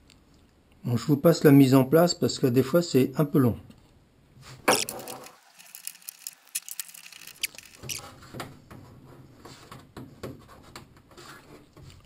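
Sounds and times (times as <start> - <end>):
wooden parts tapping and clicking: 4.8 - 8.0.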